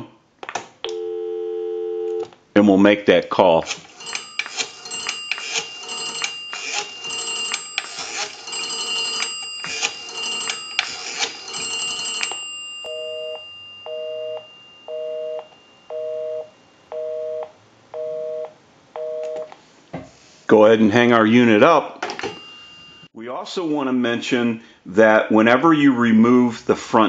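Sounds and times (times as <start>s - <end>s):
rotary dial clicking: 3.6s - 12.5s
busy signal beeping: 12.8s - 19.5s.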